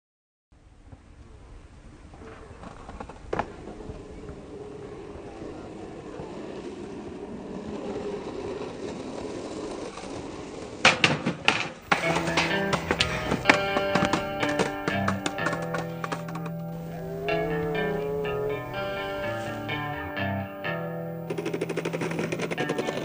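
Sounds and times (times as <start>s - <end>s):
skateboard clacking on concrete: 7.5s - 23.0s
dim ambience: 11.8s - 23.0s
music: 11.9s - 23.0s.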